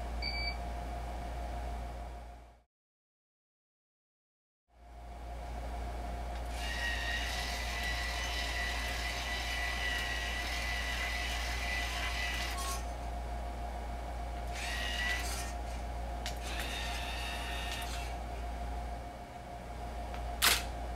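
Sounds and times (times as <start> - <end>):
steady low hum: 0.0 - 2.6, 4.7 - 20.9
servo motors whining: 6.5 - 12.9, 14.5 - 15.8, 16.4 - 18.2.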